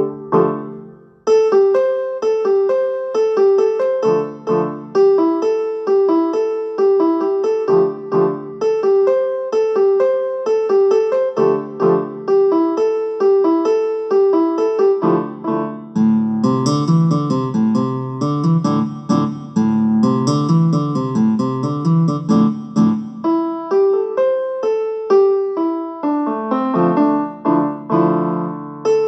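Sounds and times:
lower chords: 16.4 - 23.1.

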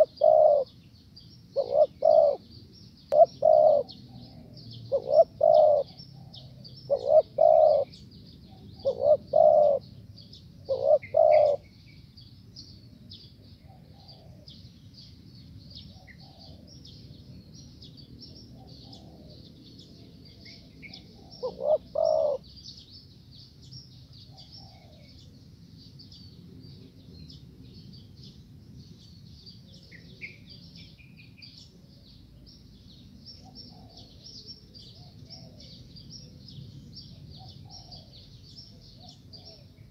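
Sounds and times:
dove cooing: 0.0 - 0.7, 1.5 - 2.5, 3.1 - 9.9, 10.7 - 11.7, 13.6 - 14.5, 16.0 - 16.7, 18.6 - 19.4, 20.4 - 22.4, 24.3 - 25.1, 33.5 - 34.2, 34.8 - 35.8, 37.4 - 38.1, 38.8 - 39.8.

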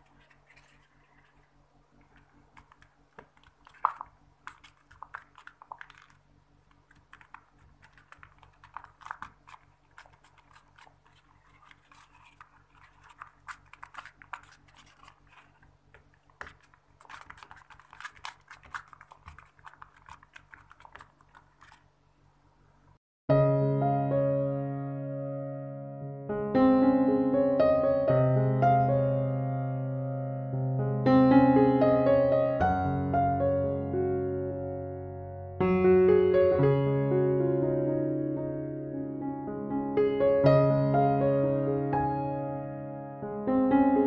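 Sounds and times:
crinkly paper clicks: 0.0 - 22.0.

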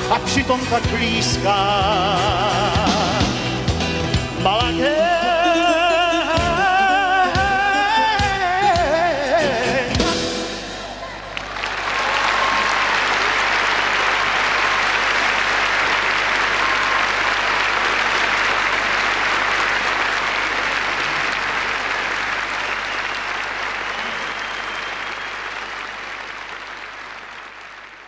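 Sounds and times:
audience applauding: 10.5 - 28.0.

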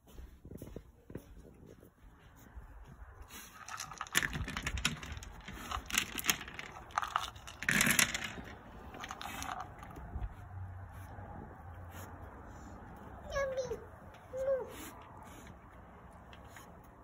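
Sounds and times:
puppy crunching kibble: 3.3 - 10.3
kibble clattering onto rubber mat: 3.6 - 10.0.

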